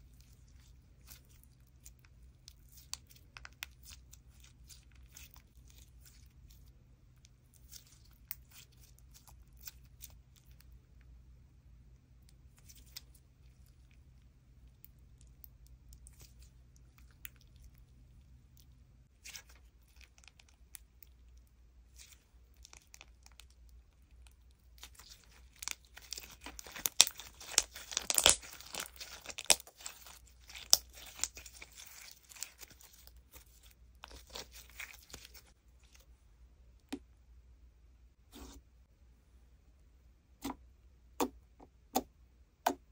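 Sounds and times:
slime crackling and popping: 0:21.9 - 0:35.5.

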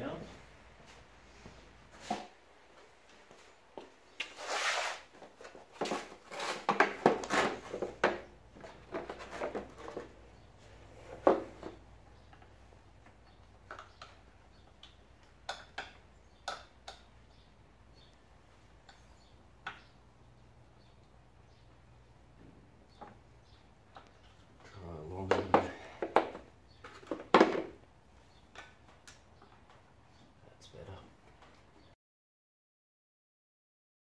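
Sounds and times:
scraping and rustling: 0:04.2 - 0:11.8.

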